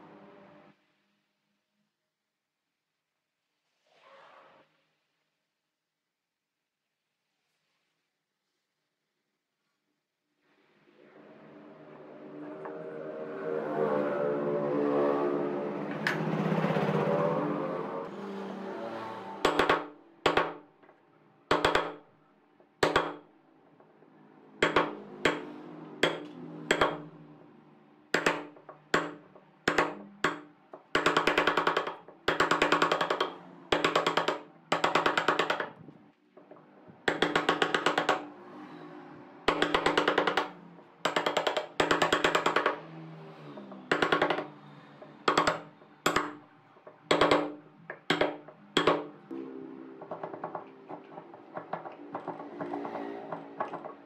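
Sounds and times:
soft background music: 0:10.9 - 0:22.6, 0:45.8 - 0:54.0
chisel chopping into wood: 0:22.8 - 0:23.2, 0:26.0 - 0:27.0, 0:47.1 - 0:49.1.

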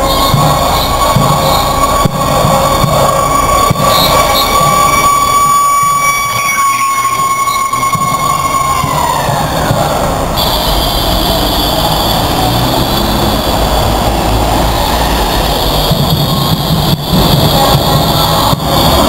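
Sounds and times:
high squeal sliding down: 0:00.0 - 0:17.3
cars and bus passing: 0:00.0 - 0:19.0.

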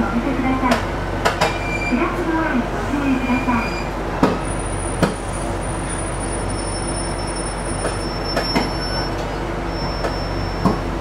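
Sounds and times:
diesel railcar hum: 0:00.0 - 0:11.0.

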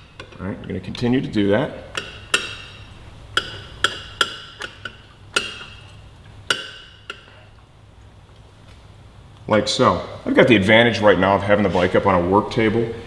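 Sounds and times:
metal exhaust pipes clinking: 0:01.8 - 0:07.7.

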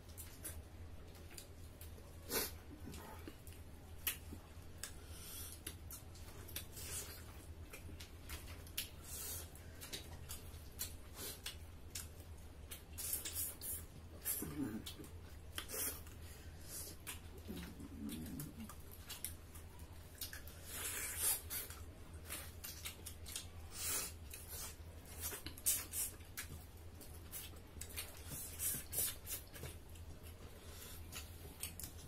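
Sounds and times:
people chewing and lip smacking: 0:00.0 - 0:32.0.

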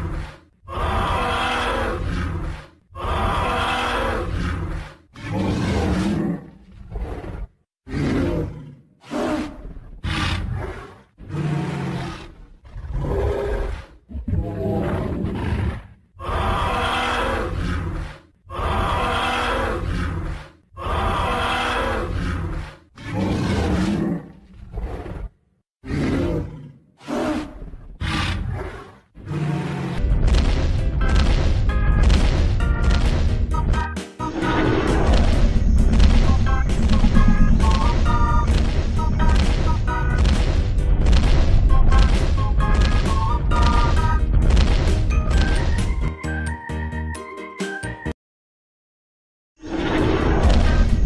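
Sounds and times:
monster growling roars: 0:00.0 - 0:30.0, 0:34.3 - 0:40.2, 0:49.6 - 0:51.0.

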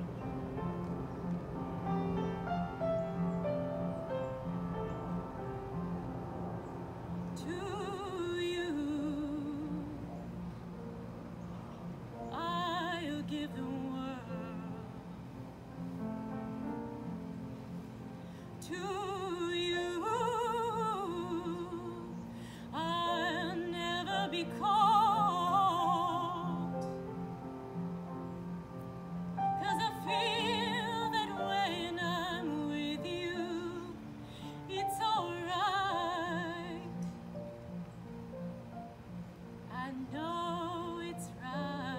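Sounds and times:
low held accompaniment tones: 0:00.0 - 0:41.9
woman singing operatically: 0:07.4 - 0:10.1, 0:12.3 - 0:14.9, 0:18.6 - 0:27.0, 0:29.6 - 0:37.1, 0:39.7 - 0:41.9.

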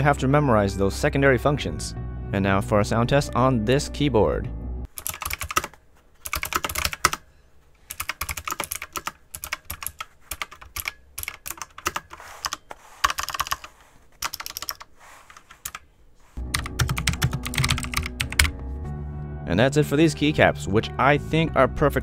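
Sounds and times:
music: 0:00.0 - 0:04.9, 0:16.4 - 0:22.0
mechanical keyboard typing: 0:04.9 - 0:07.2, 0:07.9 - 0:15.8, 0:16.4 - 0:18.5.

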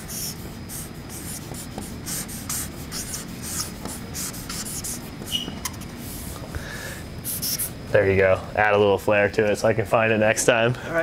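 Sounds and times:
marker pen scratching on wall: 0:00.0 - 0:06.4, 0:07.2 - 0:07.7
marker pen squeak: 0:00.1 - 0:05.9, 0:07.2 - 0:07.7.

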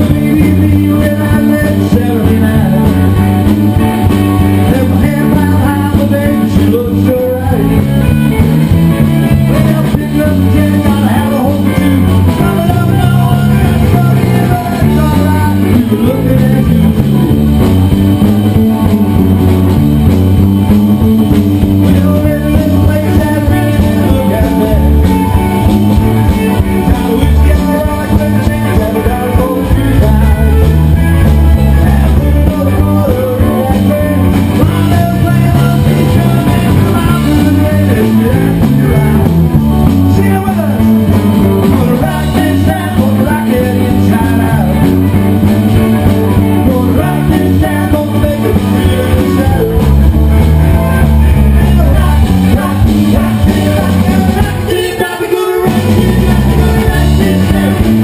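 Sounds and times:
bass line: 0:00.0 - 0:58.0
drums: 0:00.0 - 0:58.0
electric guitar: 0:00.0 - 0:58.0.

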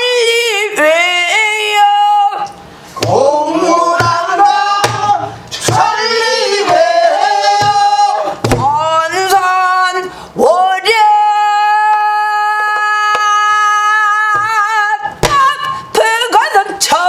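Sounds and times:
woman singing: 0:00.0 - 0:05.9, 0:06.7 - 0:17.0
barrel drum strokes: 0:03.0 - 0:08.9.

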